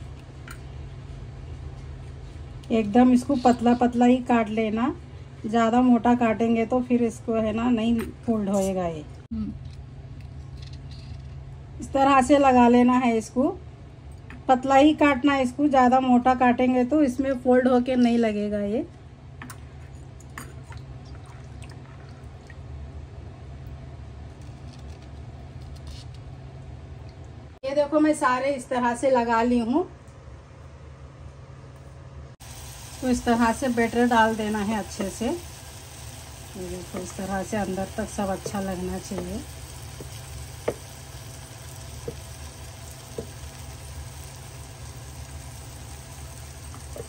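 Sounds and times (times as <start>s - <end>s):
low background hum: 0.0s - 47.0s
small splashes and drips: 20.6s - 22.7s
steady low hum: 29.6s - 47.0s.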